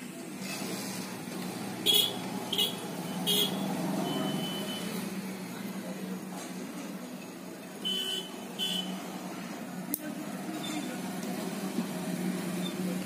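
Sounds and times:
short high beeps: 4.0s - 4.9s.

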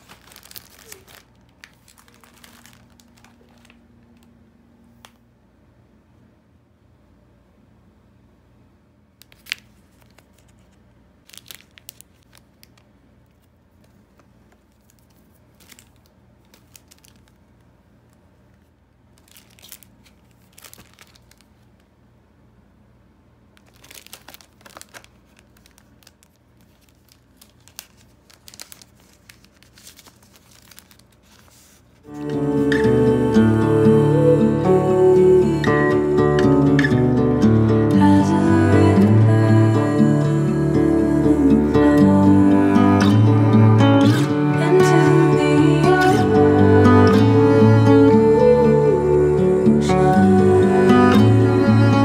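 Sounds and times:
plastic packaging crinkling: 0.0s - 4.4s, 9.2s - 21.9s, 23.6s - 32.4s.

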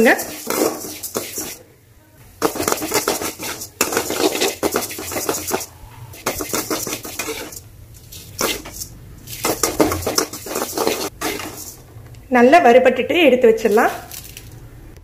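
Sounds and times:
dry rattling of grains: 0.0s - 1.6s, 2.4s - 11.8s, 13.7s - 14.6s
metal ladle scraping metal pan: 0.0s - 1.6s, 2.4s - 11.9s.

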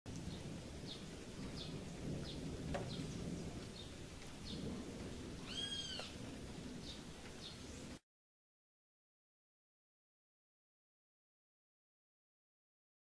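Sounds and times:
high falling animal chirps: 5.4s - 6.2s
rising and falling animal call: 5.4s - 6.2s.

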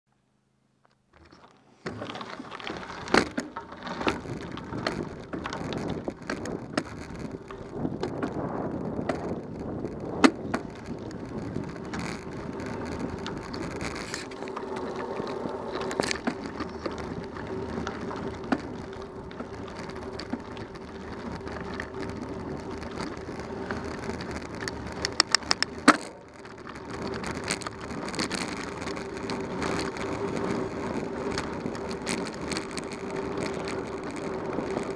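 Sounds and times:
bicycle tyres crunching on gravel: 0.9s - 34.9s
bicycle rattling: 1.0s - 34.9s
bicycle knocking over bumps: 1.1s - 34.9s.

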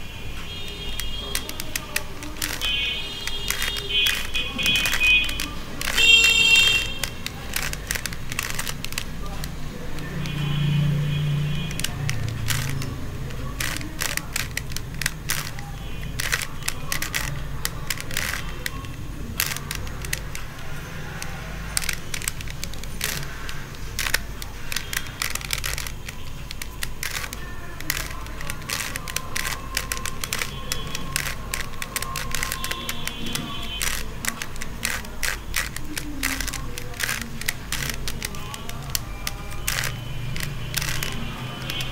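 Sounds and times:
puzzle cube layers clicking: 0.0s - 41.9s.

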